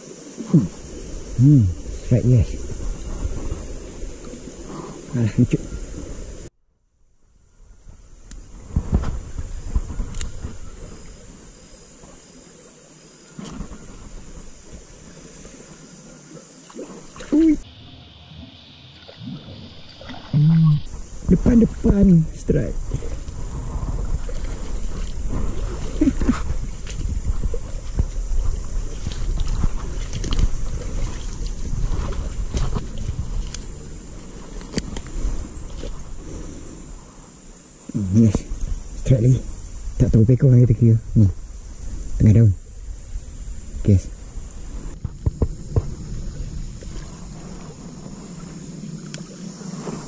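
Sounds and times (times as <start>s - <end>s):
leaves and brush rustling: 0.0s - 6.5s, 7.5s - 50.0s
wind buffeting microphone: 0.7s - 6.5s, 7.6s - 11.6s, 20.4s - 37.2s, 38.1s - 50.0s
stream water rushing: 9.4s - 17.8s.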